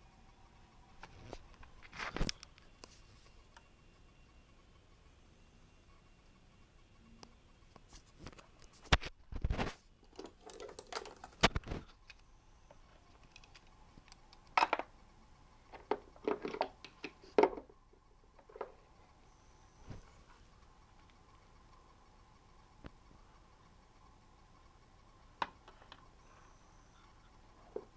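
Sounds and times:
plastic toy parts clicking: 10.0s - 12.2s, 13.1s - 14.9s.

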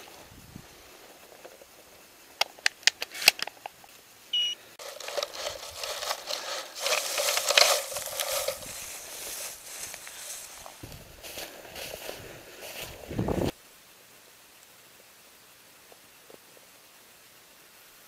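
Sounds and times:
rustling hiss: 0.0s - 18.0s
short electronic beep: 4.4s - 4.6s.

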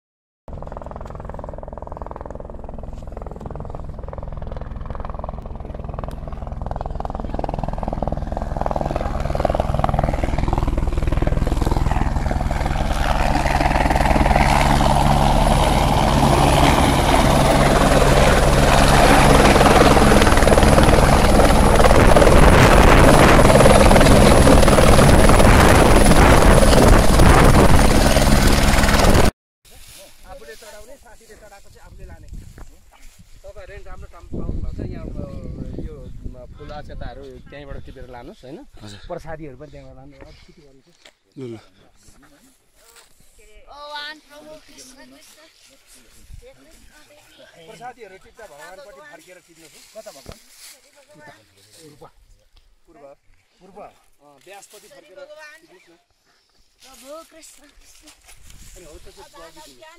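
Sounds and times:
helicopter rotor beat: 0.5s - 29.3s
high turbine whine: 0.5s - 29.3s.

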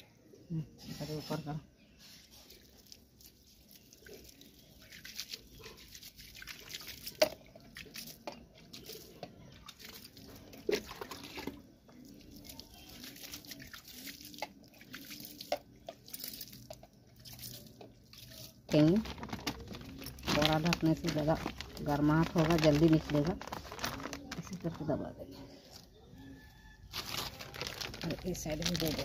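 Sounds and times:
water dripping onto soil: 2.5s - 24.8s.

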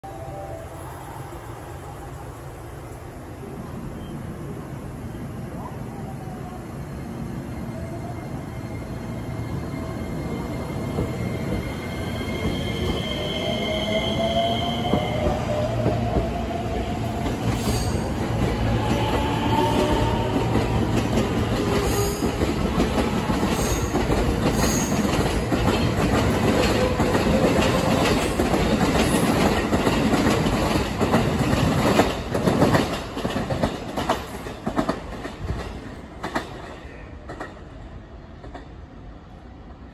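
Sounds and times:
wheels clacking on rail joints: 19.8s - 37.6s.

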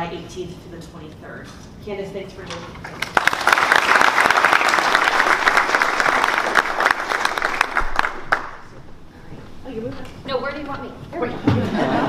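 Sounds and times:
audience applauding: 2.9s - 8.7s.

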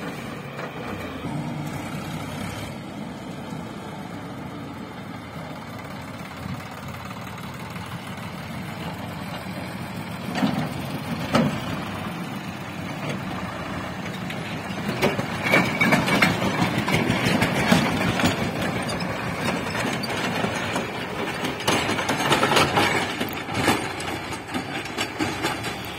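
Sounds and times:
diesel tractor engine running: 0.0s - 25.9s
sharp knocks and clattering: 6.2s - 25.9s.

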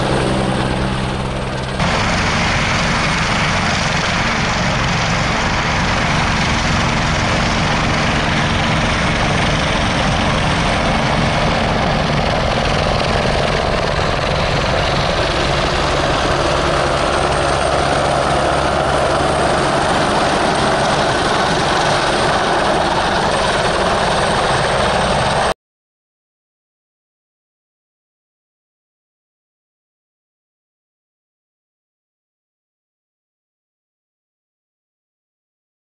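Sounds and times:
helicopter rotor beating: 0.0s - 25.6s
rushing turbine noise: 0.0s - 25.6s.

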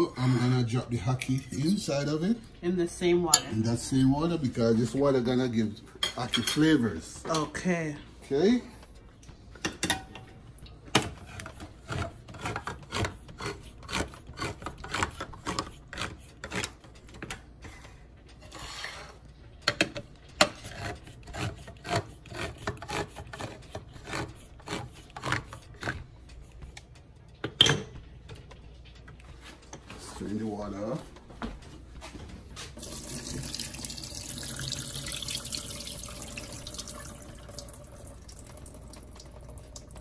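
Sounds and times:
can opener clicking and grinding: 11.0s - 17.4s.

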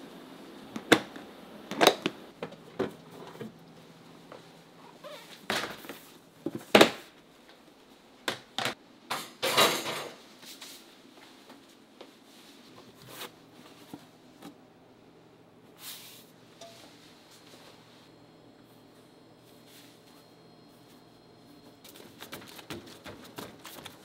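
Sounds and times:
kitchen knocks and clatters: 8.3s - 10.2s
steady low hum: 11.7s - 24.0s.

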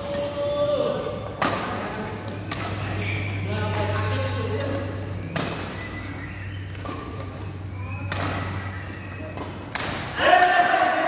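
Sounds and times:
steady low hum: 0.0s - 10.2s
racket hitting shuttlecock: 1.4s - 3.0s, 3.6s - 10.7s.

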